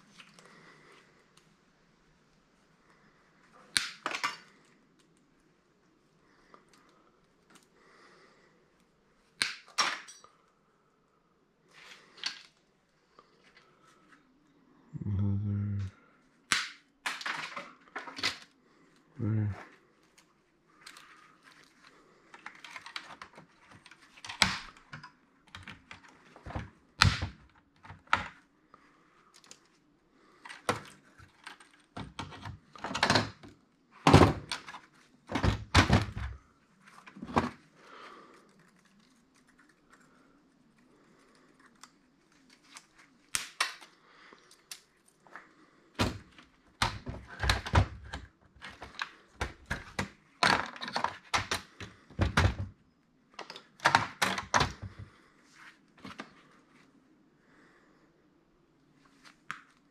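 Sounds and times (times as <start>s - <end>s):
plastic parts knocking and clicking: 22.4s - 28.4s, 30.4s - 36.4s, 46.0s - 52.8s, 53.4s - 55.1s.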